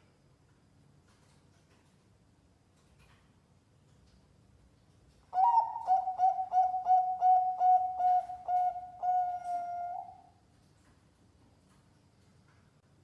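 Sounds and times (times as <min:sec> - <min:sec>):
dove cooing: 0:05.4 - 0:10.3.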